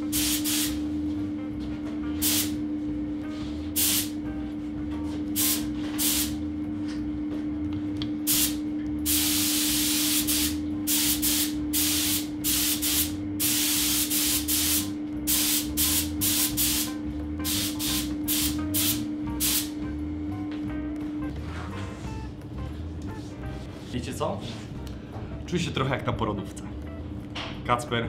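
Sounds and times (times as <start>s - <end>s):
paint spray gun hissing: 0.0s - 0.8s, 2.2s - 2.6s, 3.8s - 4.2s, 5.4s - 6.4s, 8.3s - 19.7s
steady hum: 0.0s - 27.7s.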